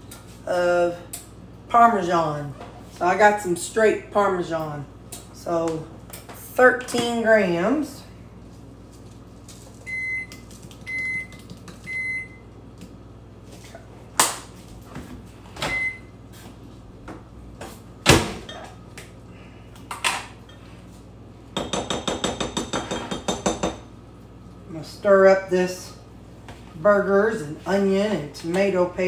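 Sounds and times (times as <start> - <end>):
microwave oven beeping: 9.8 - 12.7, 15.4 - 16.3.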